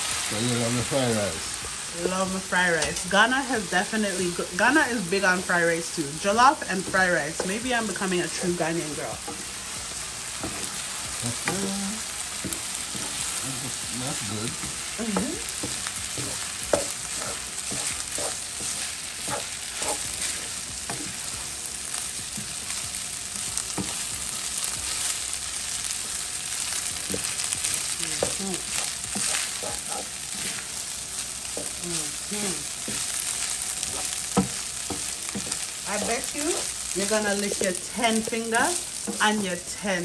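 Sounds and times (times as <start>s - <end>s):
rice sizzling in oil: 0.0s - 40.0s
wooden spoon scraping pan: 15.4s - 21.4s, 27.1s - 30.8s, 32.8s - 39.2s.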